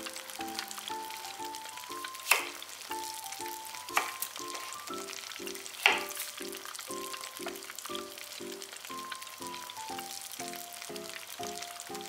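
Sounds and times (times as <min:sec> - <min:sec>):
light background music: 0:00.0 - 0:12.0
knife chopping on wooden board: 0:02.3 - 0:02.6, 0:03.9 - 0:04.2, 0:05.8 - 0:06.2.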